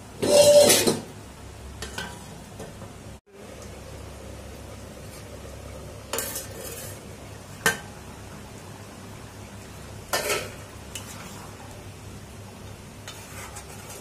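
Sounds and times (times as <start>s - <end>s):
curry sizzling: 0.0s - 14.0s
metal lid clanks: 0.2s - 1.1s
metal spatula scraping a pan: 0.2s - 1.1s, 6.1s - 7.1s, 10.1s - 11.6s, 13.0s - 14.0s.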